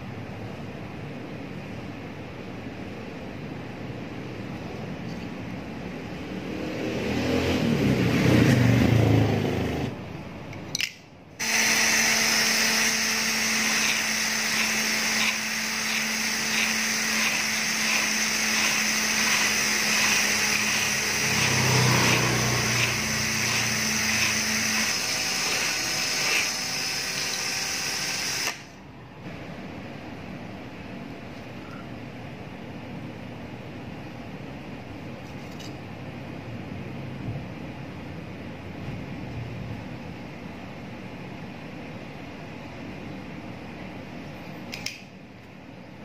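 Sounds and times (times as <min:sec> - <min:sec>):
drill motor whine: 0:11.4 - 0:28.8
click: 0:44.7 - 0:45.1.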